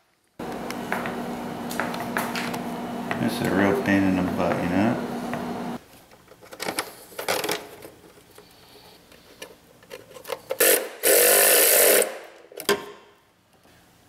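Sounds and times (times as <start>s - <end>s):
steady hum: 0.4s - 5.8s
pneumatic air tool firing: 10.6s - 12.4s.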